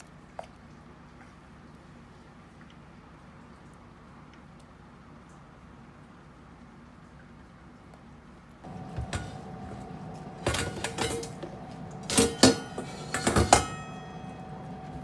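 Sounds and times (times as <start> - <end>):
faint steady hum: 0.0 - 15.0
metal cookware clattering: 10.4 - 14.8.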